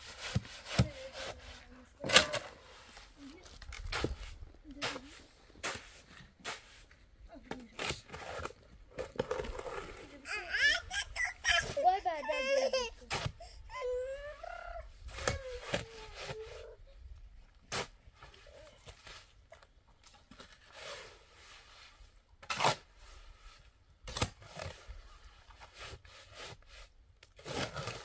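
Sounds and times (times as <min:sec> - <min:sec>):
child whimpering: 0:10.3 - 0:16.9.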